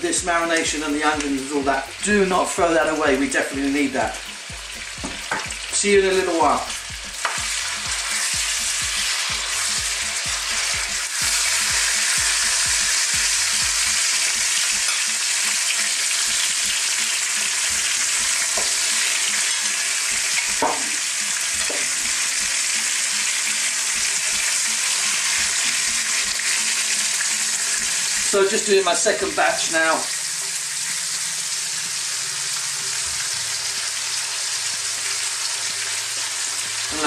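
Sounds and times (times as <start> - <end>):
chicken sizzling in oil: 0.0 - 37.0
fork knocking: 20.6 - 21.0.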